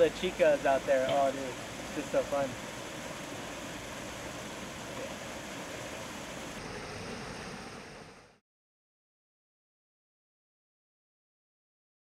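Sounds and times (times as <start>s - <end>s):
waterfall splashing into pool: 0.0s - 8.4s.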